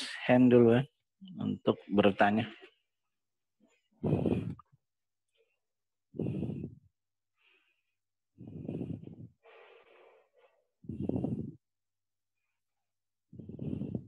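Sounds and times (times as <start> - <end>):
person breathing close to microphone: 3.8 - 11.8, 13.3 - 14.0.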